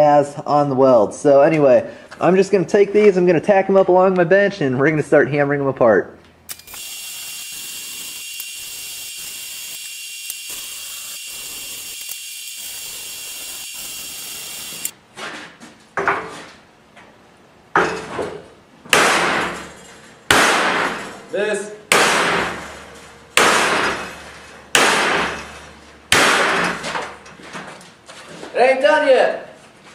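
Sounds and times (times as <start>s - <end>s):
welding arc crackling: 6.5s - 15.0s
hammer striking steel: 21.9s - 26.8s.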